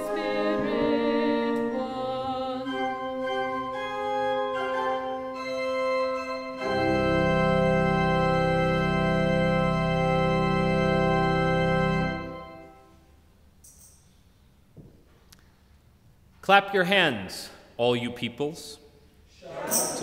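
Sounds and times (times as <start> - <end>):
organ playing a hymn: 0.0 - 13.2.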